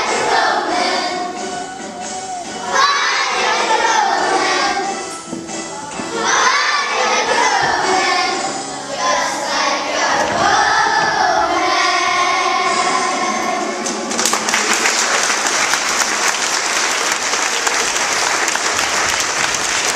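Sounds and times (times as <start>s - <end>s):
children singing in unison: 0.0s - 14.1s
audience applause: 14.0s - 19.9s.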